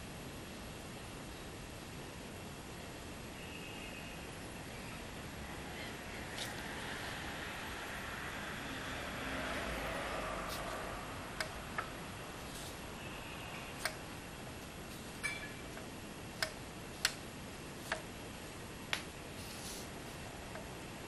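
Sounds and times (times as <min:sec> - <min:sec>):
soft rustle: 0:12.4 - 0:12.9, 0:19.3 - 0:20.3
sharp light clicks: 0:15.7 - 0:17.2.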